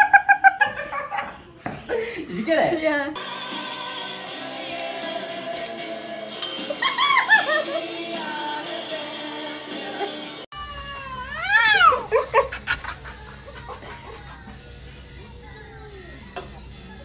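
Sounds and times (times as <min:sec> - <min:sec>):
cat yowling: 0:10.6 - 0:12.1.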